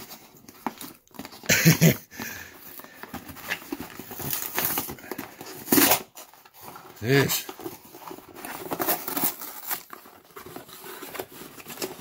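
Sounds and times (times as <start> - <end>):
cardboard box tearing: 3.0 - 12.0.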